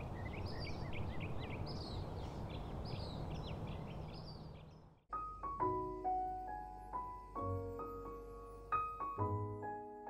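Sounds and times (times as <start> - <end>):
small birds chirping: 0.0 - 5.1.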